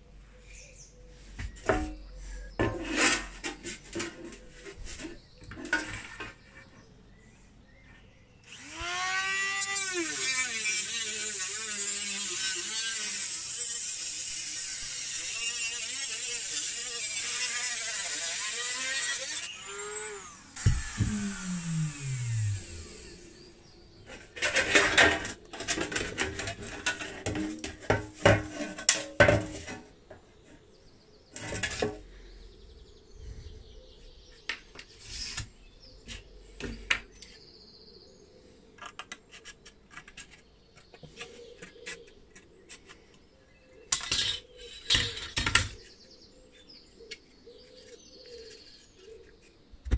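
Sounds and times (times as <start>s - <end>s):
motor winding down: 8.4s - 23.5s
cut-off disc slicing sheet metal: 20.4s - 23.2s.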